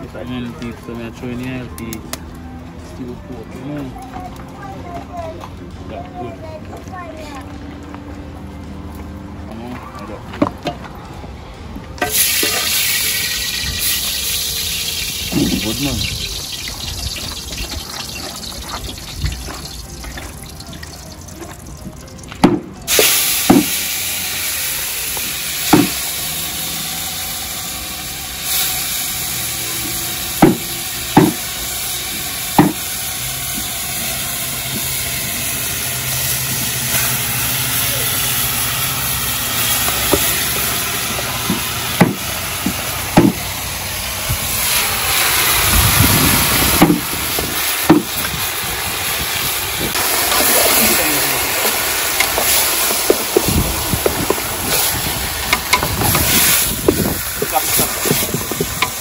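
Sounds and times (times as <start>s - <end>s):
steady hiss: 22.9s - 59.0s.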